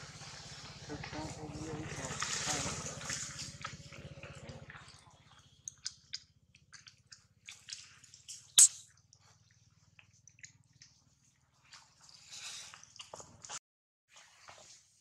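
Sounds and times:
wet mouth clicks and smacks: 5.6s - 9.2s.

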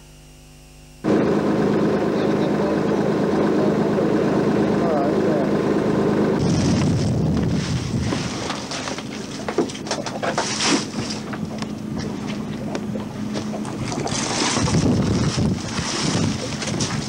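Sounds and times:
boat engine running: 1.0s - 17.0s
wind buffeting microphone: 6.4s - 9.2s, 11.3s - 17.0s
sharp knocks and rattles: 8.0s - 11.7s.

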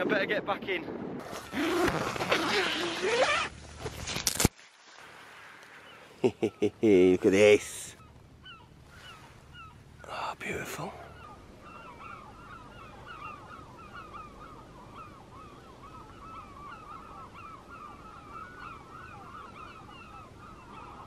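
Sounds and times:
distant flock of birds calling: 5.6s - 21.0s.

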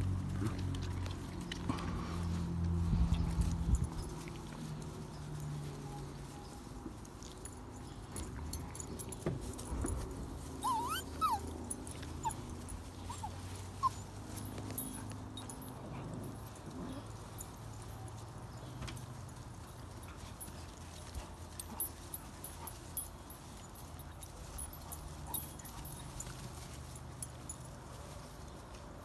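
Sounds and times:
puppies whimpering and yipping: 9.7s - 17.2s, 21.4s - 27.0s.

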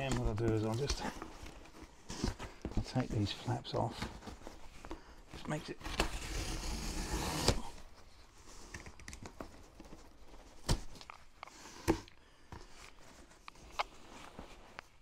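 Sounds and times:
cardboard being cut and torn: 5.9s - 7.8s.

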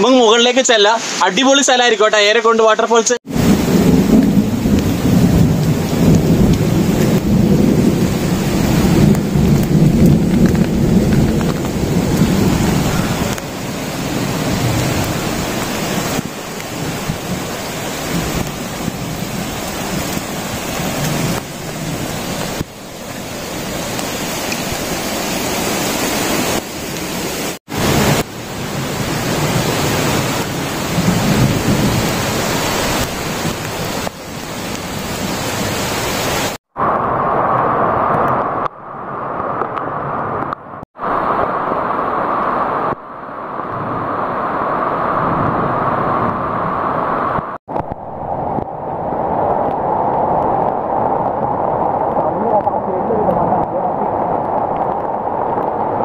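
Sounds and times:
heavy rain hissing: 0.1s - 2.0s, 3.3s - 38.5s.

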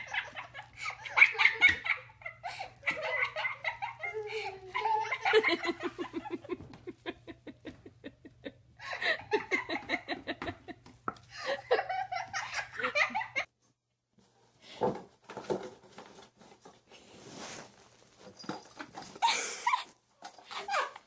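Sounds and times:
people laughing: 0.0s - 13.5s.

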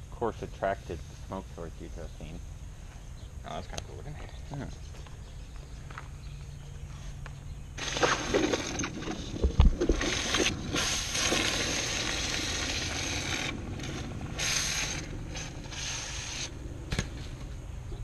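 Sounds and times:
hot metal hissing in water: 14.4s - 16.5s.

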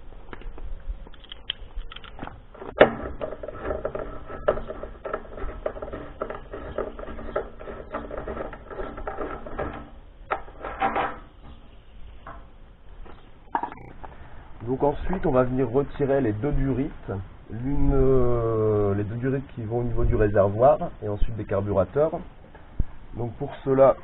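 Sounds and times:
tool clattering: 2.6s - 11.6s.

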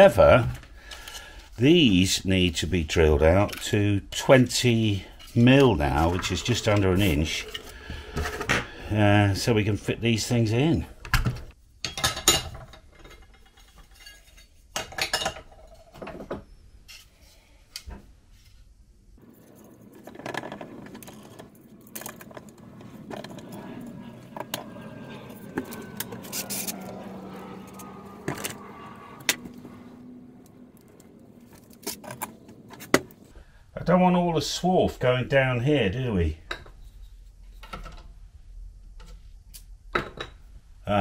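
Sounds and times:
low rumble with falling whine: 22.4s - 32.7s.

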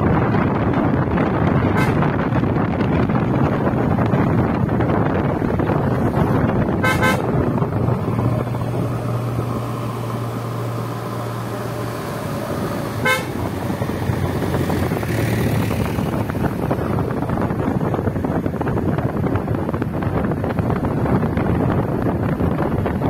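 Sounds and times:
car driving on road: 0.0s - 23.0s
vehicle horn toots: 1.7s - 2.1s, 6.8s - 7.4s, 13.0s - 13.5s.

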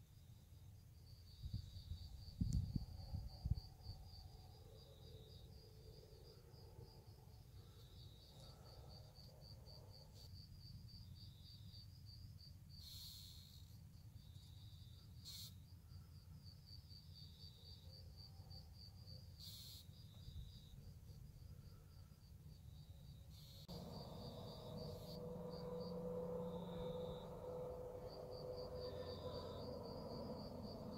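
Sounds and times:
crickets chirping: 0.0s - 30.9s
low rumble: 23.7s - 30.9s.

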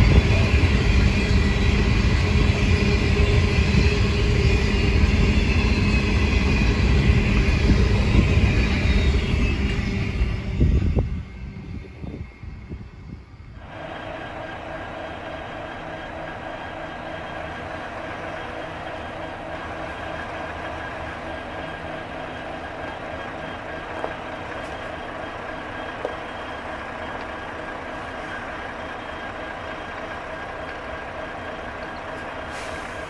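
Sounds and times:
diesel engines humming: 12.7s - 33.0s.

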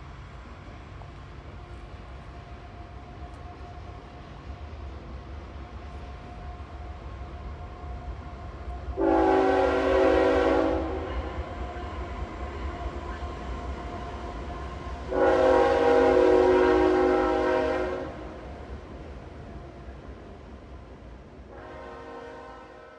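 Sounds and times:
train horn blasts: 7.6s - 13.2s, 15.0s - 18.6s, 21.5s - 22.9s.

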